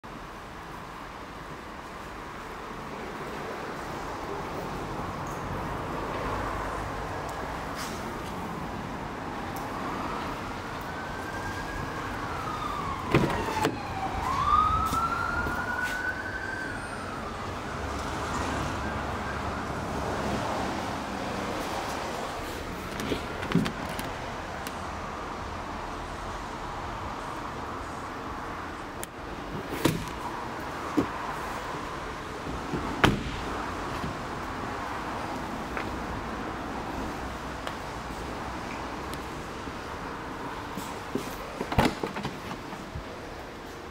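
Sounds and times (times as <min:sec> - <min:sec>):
wailing siren: 0:09.7 - 0:20.4
car door shutting: 0:13.1 - 0:13.8, 0:29.6 - 0:30.2, 0:32.7 - 0:33.4, 0:41.1 - 0:42.8.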